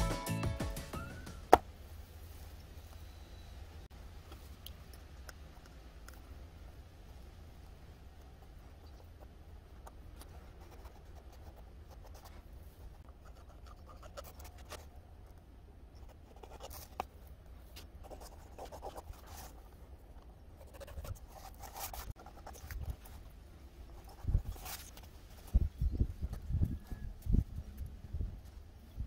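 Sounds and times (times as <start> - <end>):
pencil scratching on paper: 20.6 - 23.0.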